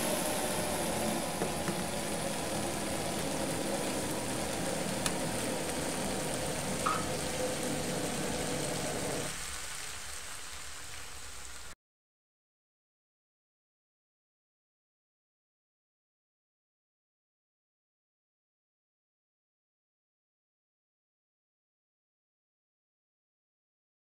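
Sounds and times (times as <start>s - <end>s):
fish stew sizzling in a frying pan: 0.0s - 11.8s.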